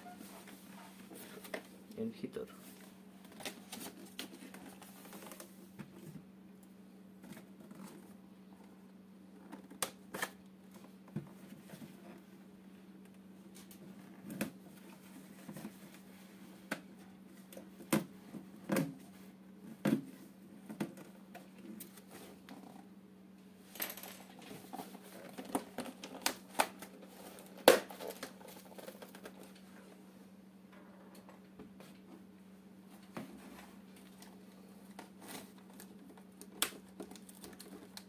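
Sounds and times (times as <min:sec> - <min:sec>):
low steady hum: 0:00.0 - 0:38.0
packaging rustle: 0:34.9 - 0:38.0.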